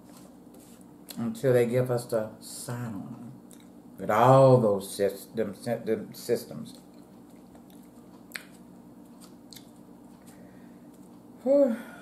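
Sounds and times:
steady low hum: 0.0s - 12.0s
wet mouth noises: 7.3s - 8.6s, 9.4s - 10.3s
person humming: 11.4s - 12.0s.

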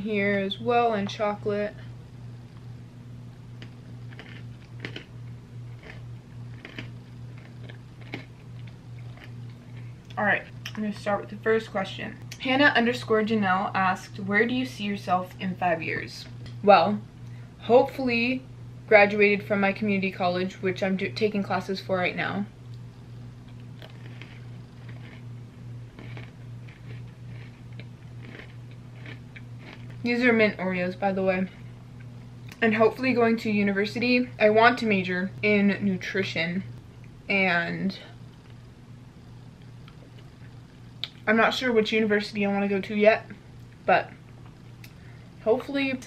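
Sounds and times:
low electrical hum: 0.0s - 46.0s
chewing with mouth closed: 3.6s - 5.1s, 5.8s - 10.8s, 23.5s - 25.3s, 25.9s - 30.0s.

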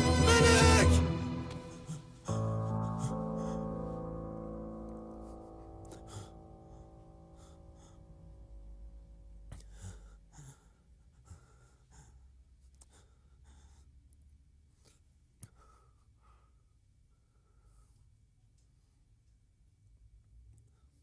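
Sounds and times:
man breathing and sighing: 0.9s - 4.5s, 5.1s - 8.3s.

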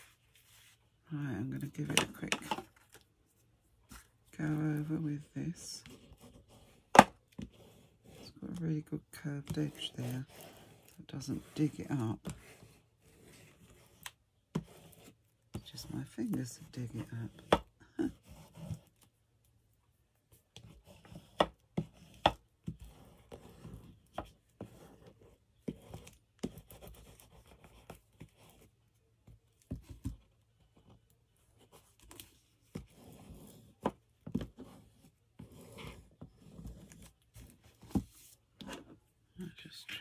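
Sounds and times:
tool rubbing over paper: 4.8s - 14.0s.

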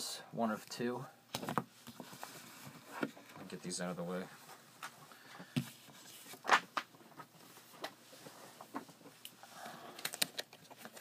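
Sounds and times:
paper rustling: 5.7s - 9.0s.

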